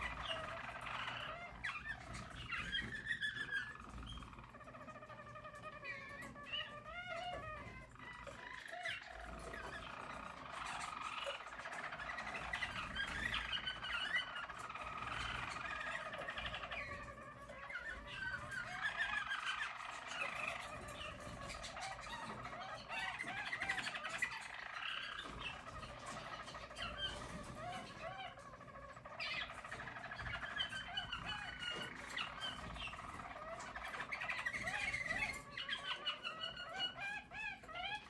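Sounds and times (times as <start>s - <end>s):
canaries singing trills: 0.0s - 38.0s.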